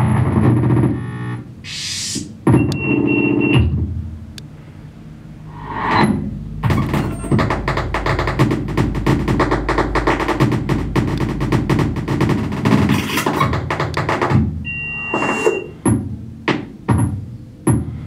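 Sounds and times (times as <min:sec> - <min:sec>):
glitchy electronic music: 0:06.6 - 0:15.8.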